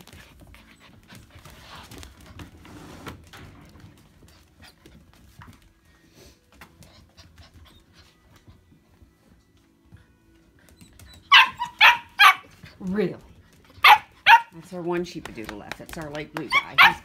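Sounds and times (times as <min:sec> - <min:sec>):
puppies panting: 0:00.0 - 0:02.6, 0:03.9 - 0:17.0.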